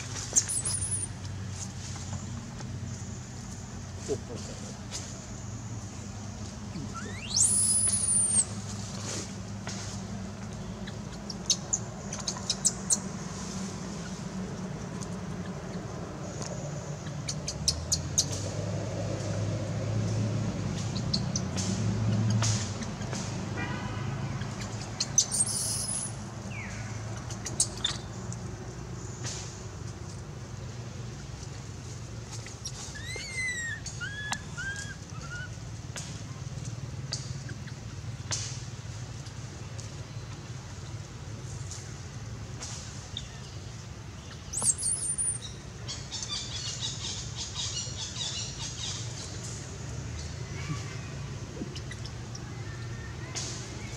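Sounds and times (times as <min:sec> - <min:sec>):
high chirps and calls: 0:00.0 - 0:01.2, 0:06.7 - 0:08.6, 0:24.4 - 0:28.2, 0:32.5 - 0:35.6, 0:44.2 - 0:49.2
low engine-like hum: 0:00.0 - 0:53.9
baby monkey squealing: 0:00.4 - 0:01.1, 0:06.7 - 0:08.6, 0:25.1 - 0:26.1, 0:32.6 - 0:35.6
steady low rumble: 0:01.0 - 0:23.6.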